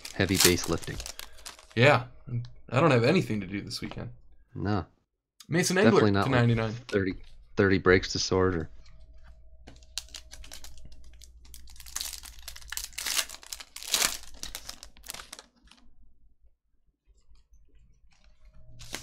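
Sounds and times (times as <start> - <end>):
foil wrapper crinkling and tearing: 0.0 - 1.8, 9.9 - 15.9, 18.8 - 19.0.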